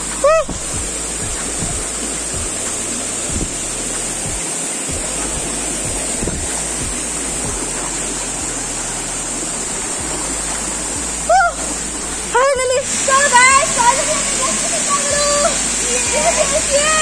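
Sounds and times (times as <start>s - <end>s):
waterfall rushing: 0.0s - 17.0s.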